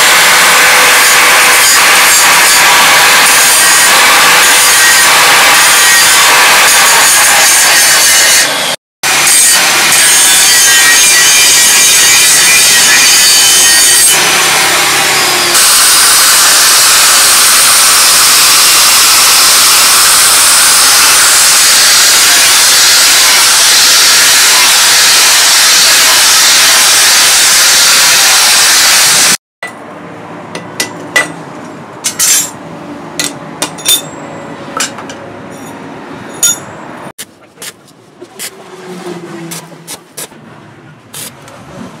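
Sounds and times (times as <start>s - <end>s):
angle grinder grinding steel: 0.0s - 29.4s.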